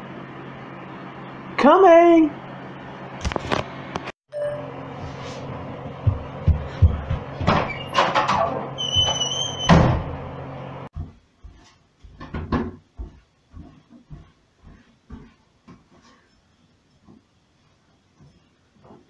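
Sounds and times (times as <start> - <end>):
door banging shut: 7.4 - 10.2.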